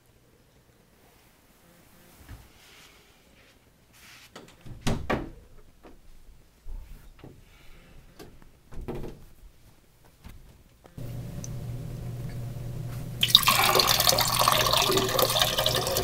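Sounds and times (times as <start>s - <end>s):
door opening and shutting: 4.4s - 5.7s, 8.2s - 9.3s.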